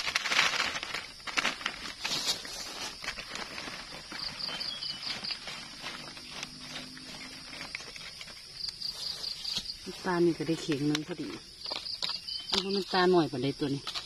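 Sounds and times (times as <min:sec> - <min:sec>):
mushrooms pattering into crate: 0:00.0 - 0:13.0
insects buzzing: 0:00.0 - 0:14.0
chirps: 0:04.2 - 0:05.5, 0:11.6 - 0:13.1.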